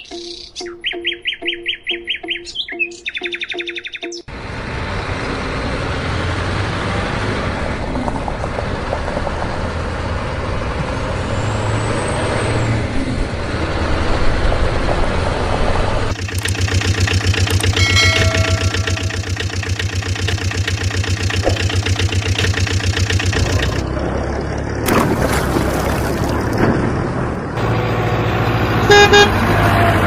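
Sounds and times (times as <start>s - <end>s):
high chirping pulses: 0.0s - 4.3s, 16.1s - 23.8s
diesel truck engine idling: 16.1s - 24.9s.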